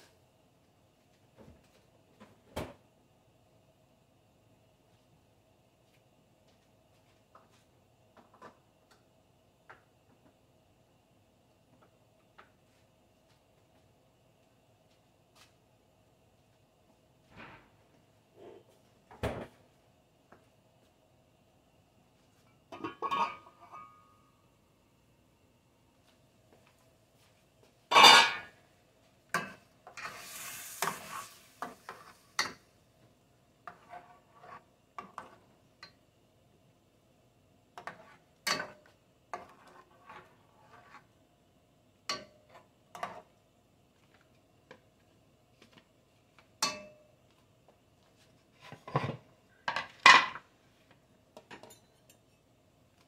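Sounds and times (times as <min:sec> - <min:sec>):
metal spoon scraping in a pot: 0:29.9 - 0:32.5, 0:33.7 - 0:35.4, 0:39.4 - 0:41.1
brief hiss: 0:30.0 - 0:31.6.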